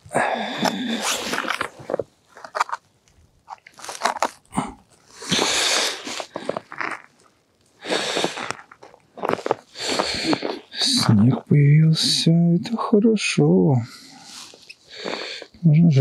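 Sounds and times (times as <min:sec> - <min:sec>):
snow crunching underfoot: 0:07.8 - 0:12.4.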